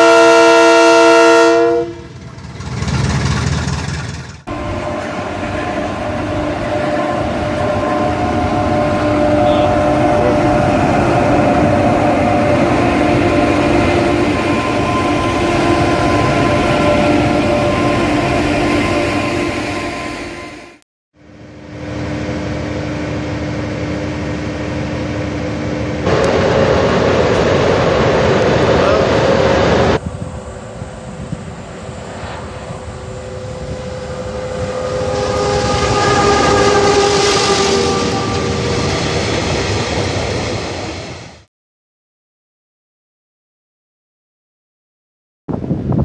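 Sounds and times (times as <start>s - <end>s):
electric locomotives passing: 0.0s - 41.5s
locomotive low hum: 1.7s - 18.7s, 21.2s - 41.4s
wheel-on-rail noise: 2.0s - 17.9s, 22.4s - 41.3s.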